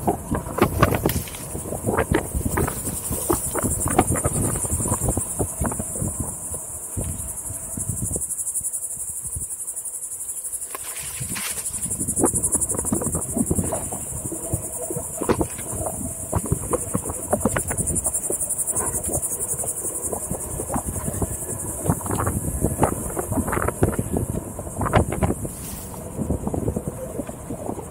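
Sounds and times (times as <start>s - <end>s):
board knocking over bumpy trail: 0.0s - 6.0s
insect chorus buzzing: 0.0s - 27.9s
low wind rumble: 0.0s - 27.9s.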